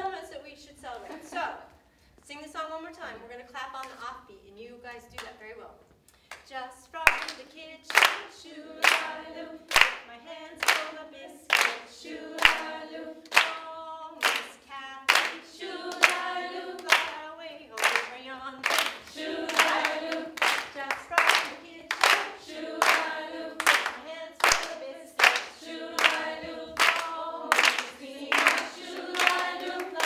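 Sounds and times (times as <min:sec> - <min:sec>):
women singing unaccompanied: 0:06.5 - 0:30.0
hands clapping: 0:07.1 - 0:13.6, 0:14.2 - 0:17.2, 0:17.8 - 0:30.0.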